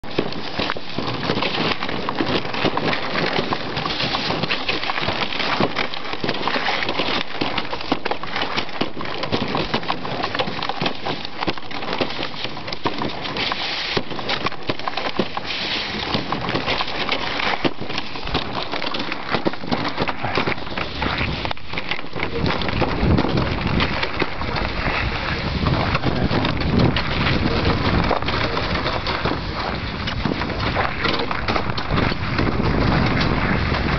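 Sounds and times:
sled runners scraping snow: 0.0s - 33.9s
wind rumbling on microphone: 0.0s - 33.9s.

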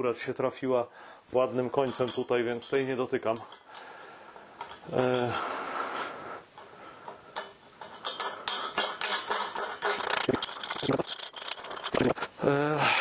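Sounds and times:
steel hardware clinking on beam: 1.8s - 3.9s, 7.3s - 12.0s.

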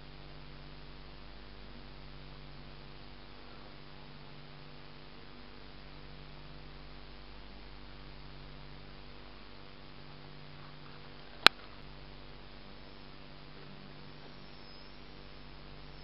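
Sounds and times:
faint hiss: 0.0s - 16.0s
low electrical hum: 0.0s - 16.0s.

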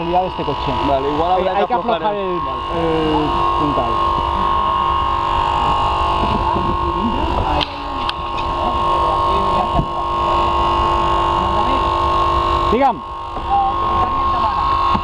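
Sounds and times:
hydraulic pump whining hum: 0.0s - 15.0s.

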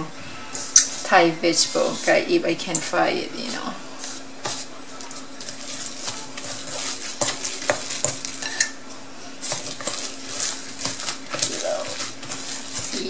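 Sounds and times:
wet squishing of mixed meat: 3.5s - 13.0s
scrapes and taps against bowl: 4.0s - 8.7s.

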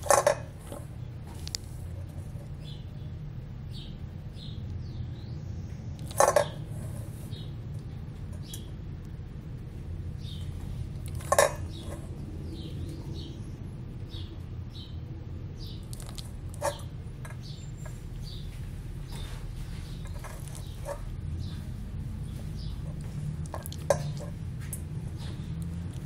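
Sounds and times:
jaws knocking metal bowl: 0.0s - 0.6s, 11.1s - 12.0s
steady low hum: 0.0s - 26.0s
wet mouth noises: 15.8s - 16.4s.

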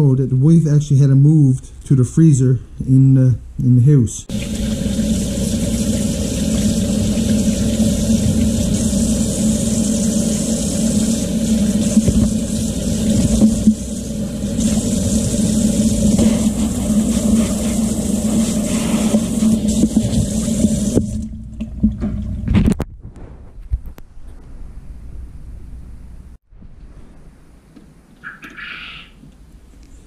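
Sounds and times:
faucet running into sink: 4.3s - 22.2s.

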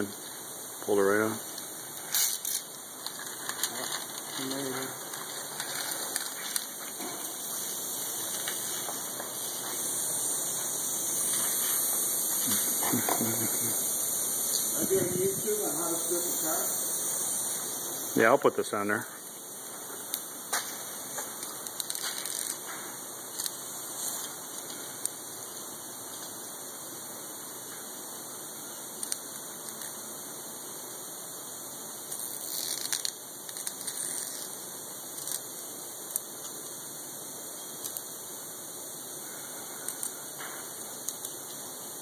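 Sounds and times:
steady hiss: 0.0s - 42.0s
fingers peeling flaking clear coat: 21.3s - 22.7s, 32.1s - 35.5s.

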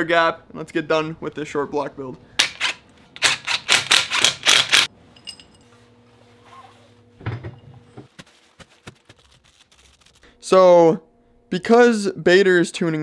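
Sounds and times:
light metallic clinks: 5.2s - 5.7s.

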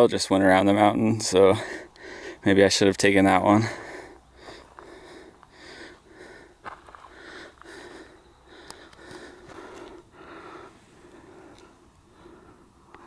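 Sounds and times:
person breathing hard: 1.5s - 2.4s, 3.5s - 13.0s.

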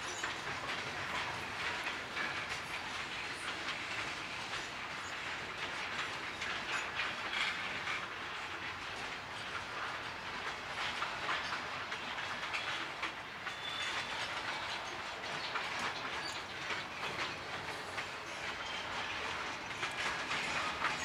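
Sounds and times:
train wheels rumbling on rails: 0.0s - 21.0s
wheels clicking over rail joints: 0.0s - 21.0s
high wheel squeaks: 13.4s - 21.0s.

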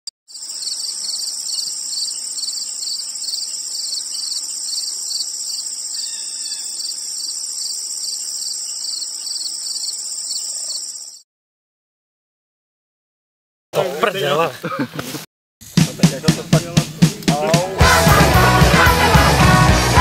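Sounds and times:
insects chirping: 0.3s - 11.2s.

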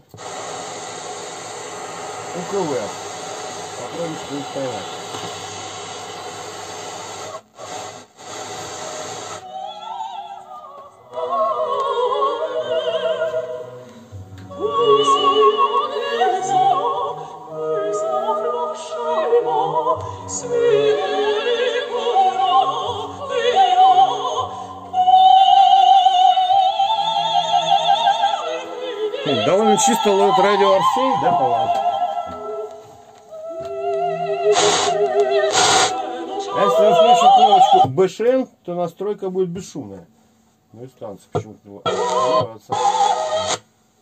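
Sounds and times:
radio tuning hiss: 0.0s - 10.5s, 13.3s - 38.2s, 39.0s - 44.0s
opera singing on radio: 9.3s - 38.0s, 41.8s - 43.7s.

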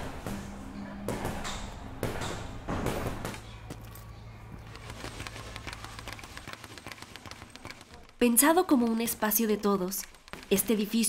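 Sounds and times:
punches thudding on heavy bags: 0.0s - 3.6s.

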